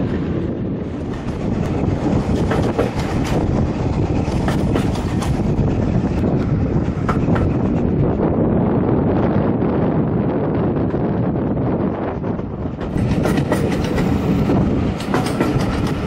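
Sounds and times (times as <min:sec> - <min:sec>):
train wheels rumbling on track: 0:00.0 - 0:16.0
wheels clicking over rail joints: 0:01.0 - 0:07.8, 0:12.8 - 0:16.0.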